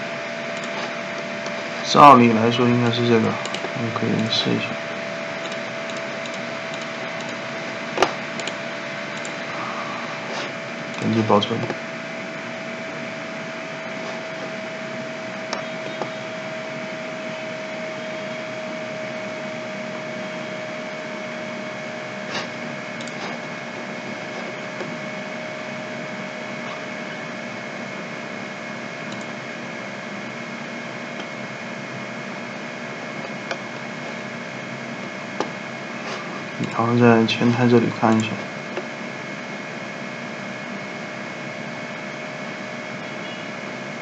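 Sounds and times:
machine hum with hiss: 0.0 - 44.0
computer mouse clicks: 0.5 - 0.9, 3.4 - 3.8, 5.4 - 7.4, 8.0 - 8.6, 9.2 - 9.4, 22.4 - 23.4, 29.1 - 29.3, 38.1 - 38.9.

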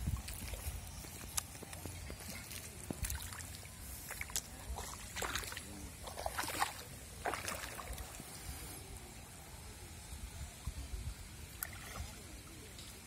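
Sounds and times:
water splashing and sloshing: 0.0 - 8.6, 11.4 - 13.0.

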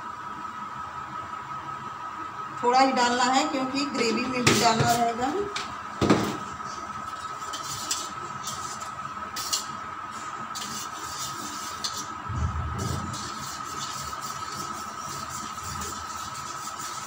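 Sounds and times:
steady high hum: 11.4 - 17.0
dull low thud: 12.3 - 13.2.

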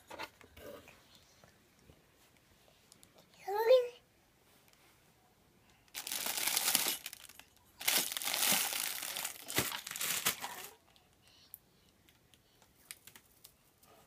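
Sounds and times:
plastic packaging crinkling: 5.9 - 10.8.

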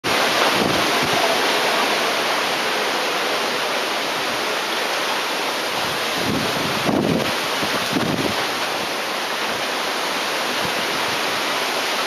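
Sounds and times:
storm wind rushing through leaves: 0.0 - 12.0
wind buffeting microphone: 5.8 - 9.0.

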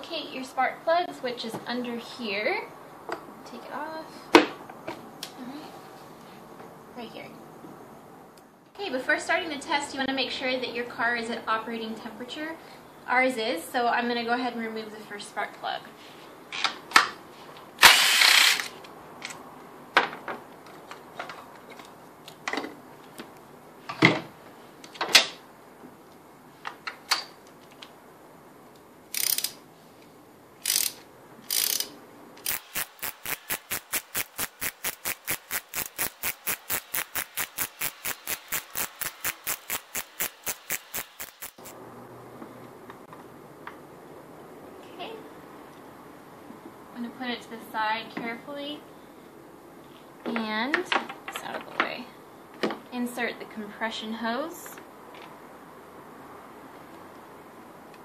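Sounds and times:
hand ratchet clicking: 17.9 - 18.7, 29.1 - 29.6, 30.6 - 41.7.

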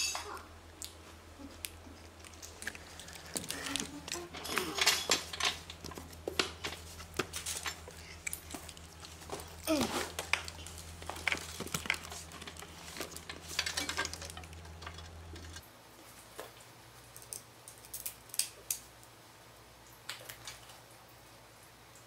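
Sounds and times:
steady low hum: 0.0 - 17.7
small metal parts clicking: 2.3 - 6.8, 10.3 - 15.6.

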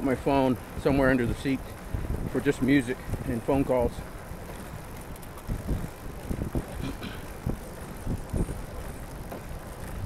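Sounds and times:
low bumps: 0.0 - 10.0
tyre and drivetrain noise: 0.0 - 10.0
wind buffeting microphone: 0.0 - 10.0.

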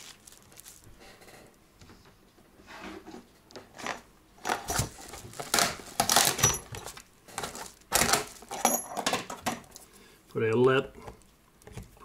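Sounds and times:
metal tools clattering in box: 6.2 - 7.7, 8.5 - 9.4.

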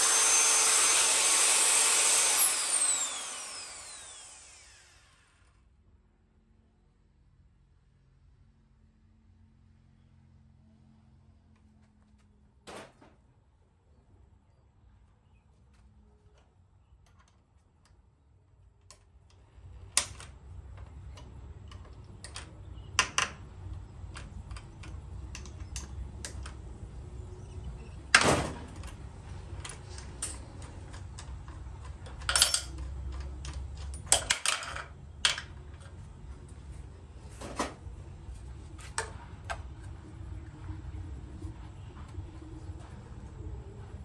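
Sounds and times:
metallic clicks and knocks of tools: 29.6 - 36.0.

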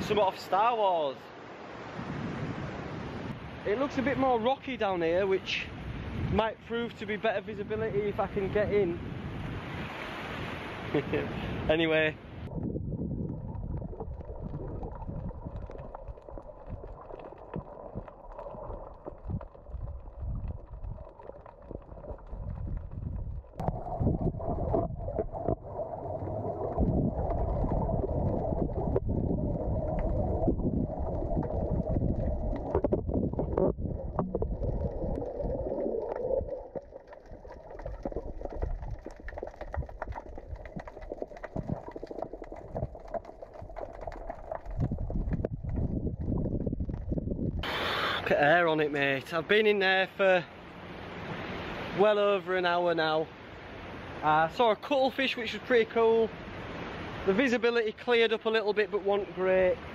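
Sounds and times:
low rumbling underwater noise: 12.2 - 48.0.

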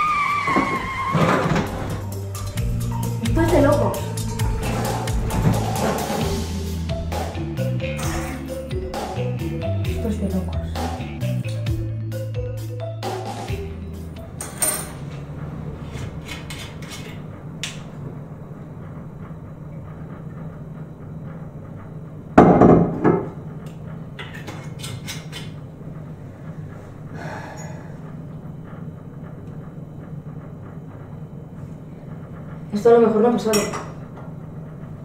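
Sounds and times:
steady low hum: 1.6 - 35.0.

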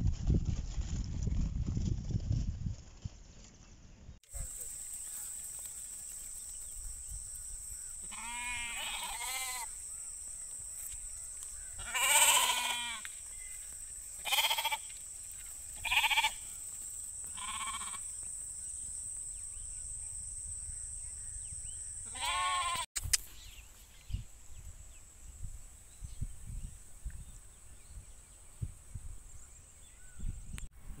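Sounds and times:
lambs bleating: 8.0 - 9.7, 11.8 - 13.1, 14.2 - 14.9, 15.8 - 16.4, 17.3 - 18.0, 22.1 - 22.9.

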